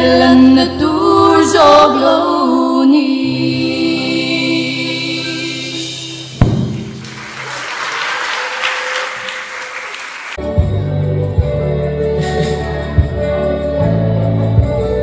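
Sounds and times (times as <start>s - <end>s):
girls' choir singing: 1.2s - 5.9s
sharp knock: 6.4s - 7.2s
audience applauding: 6.4s - 10.4s.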